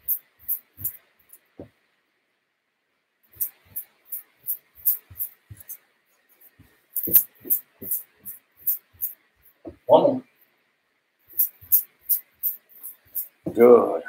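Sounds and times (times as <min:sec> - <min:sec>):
quick footsteps on carpet: 0:04.8 - 0:09.9.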